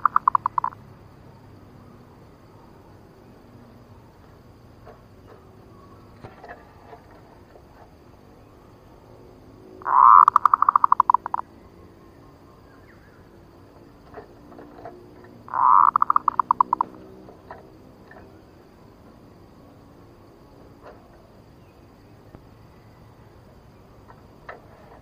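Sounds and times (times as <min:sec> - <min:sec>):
dove cooing: 0:00.0 - 0:00.8, 0:09.8 - 0:11.4, 0:14.1 - 0:18.2.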